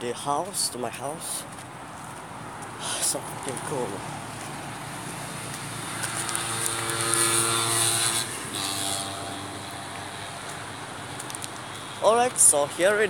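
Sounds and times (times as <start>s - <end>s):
motor drone: 5.8s - 10.1s.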